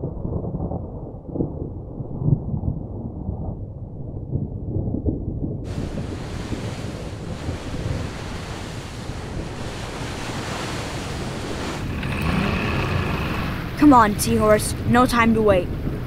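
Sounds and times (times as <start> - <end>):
low rumble: 0.0 - 14.9
waves and wind rushing: 5.7 - 16.0.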